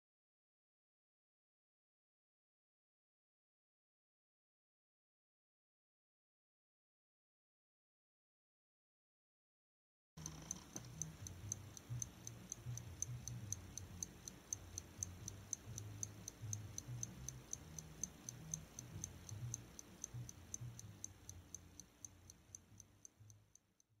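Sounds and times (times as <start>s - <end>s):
clock ticking fast: 10.2s - 23.9s.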